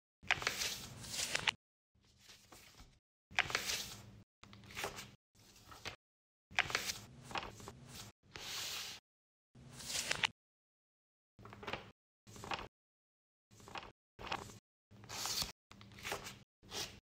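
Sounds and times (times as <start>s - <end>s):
paper rustling and crinkling: 0.3s - 4.0s.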